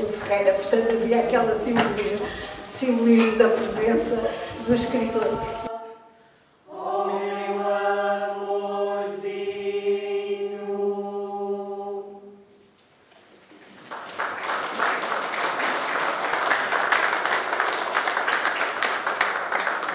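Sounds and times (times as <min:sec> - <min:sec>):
group singing held chord: 0:04.2 - 0:12.5
audience applause: 0:13.7 - 0:19.9.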